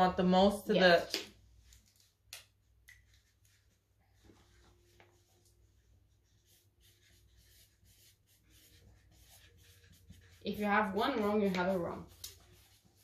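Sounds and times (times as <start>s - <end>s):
marker scratching on board: 5.2s - 13.0s.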